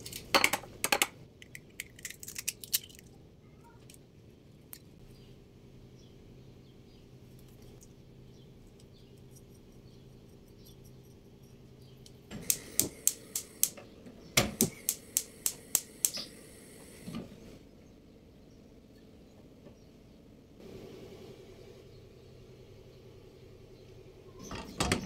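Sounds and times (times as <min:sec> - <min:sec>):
faint steady hum: 0:00.0 - 0:25.0
sharp clicks: 0:12.4 - 0:13.8, 0:14.5 - 0:16.3.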